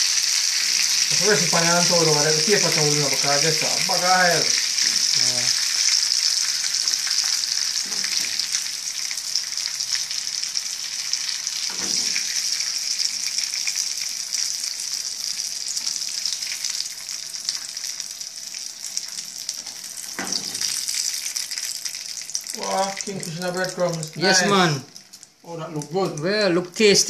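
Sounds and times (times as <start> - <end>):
fish sizzling in hot oil: 0.0 - 27.0.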